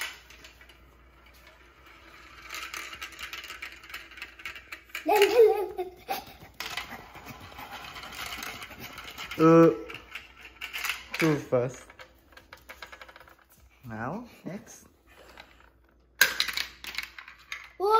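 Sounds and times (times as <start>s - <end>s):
marble rattling down plastic track: 0.0s - 13.6s, 14.7s - 17.9s
child's voice: 5.0s - 6.4s, 17.7s - 17.9s.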